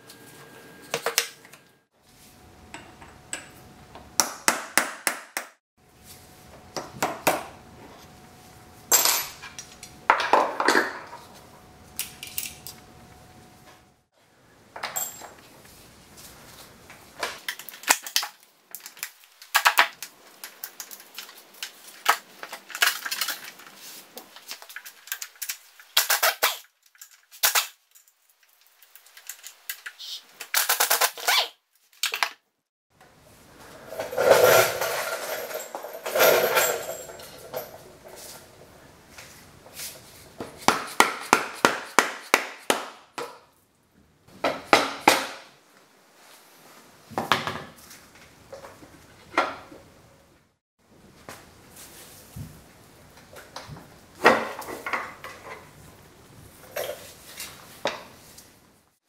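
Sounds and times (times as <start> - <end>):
metal tools clinking: 12.0 - 12.8, 14.8 - 15.4, 33.9 - 38.4.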